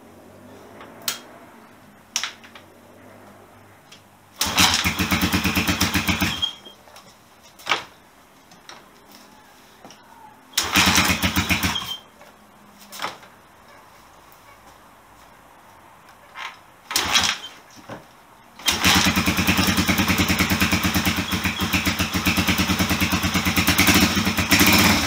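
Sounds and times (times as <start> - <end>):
motorcycle engine firing: 4.4 - 6.7, 10.5 - 12.0, 16.9 - 17.5, 18.6 - 25.0.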